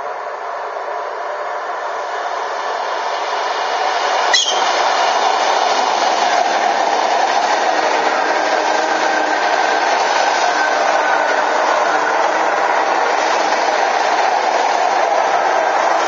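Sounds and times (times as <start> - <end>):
electric train passing: 0.0 - 16.0
sharp high-pitched sound: 4.3 - 4.8.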